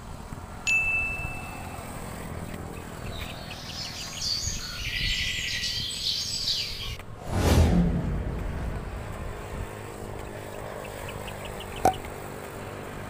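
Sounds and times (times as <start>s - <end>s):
birds chirping: 1.6s - 7.0s, 10.2s - 12.2s
low steady rumble: 7.1s - 12.2s.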